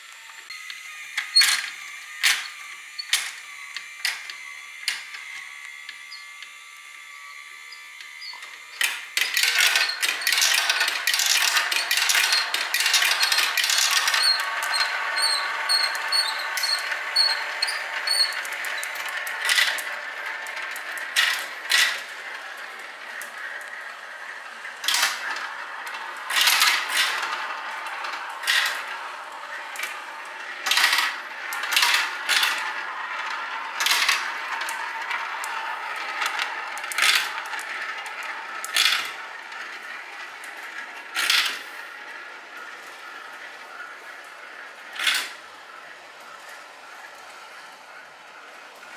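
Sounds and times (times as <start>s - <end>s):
glass marbles rolling on plastic track: 1.2s - 3.4s, 7.7s - 41.8s, 44.8s - 45.4s
marbles clacking on track: 8.3s - 23.8s, 24.8s - 39.8s.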